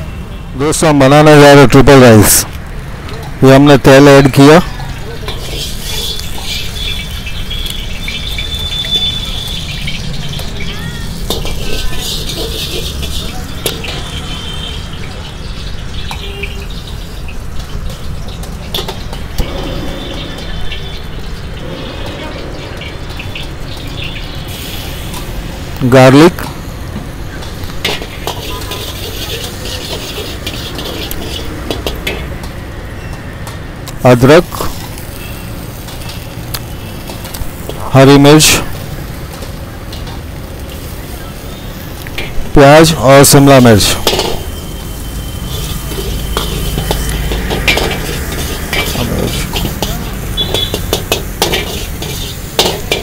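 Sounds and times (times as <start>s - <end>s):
oil crackling in a wok: 4.3s - 19.4s, 22.7s - 53.0s
ladle clinking against wok: 27.4s - 32.3s, 44.0s - 44.6s, 45.5s - 53.0s.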